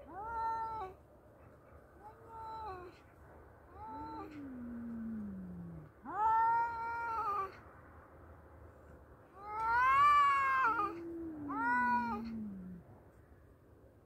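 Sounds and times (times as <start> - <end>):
cat yowling: 0.0 - 1.0, 3.7 - 7.6, 9.4 - 12.8
cat low falling moan: 3.8 - 7.6, 9.4 - 12.9.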